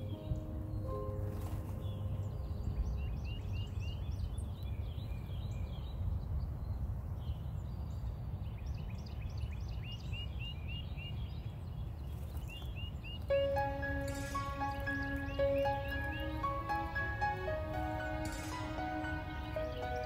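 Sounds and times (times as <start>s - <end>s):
songbirds singing and twittering: 0.0s - 20.0s.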